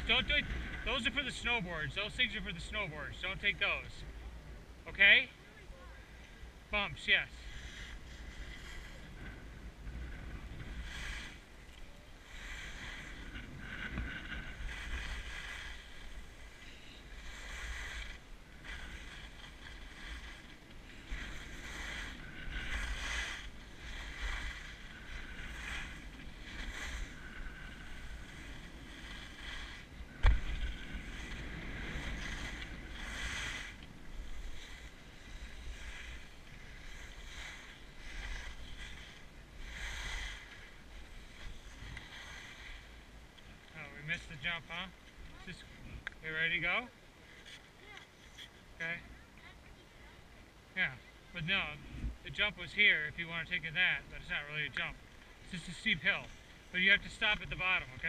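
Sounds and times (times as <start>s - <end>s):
skis scraping over snow: 0.0s - 4.3s, 6.6s - 50.2s, 50.8s - 58.0s
wind on microphone: 7.4s - 43.0s.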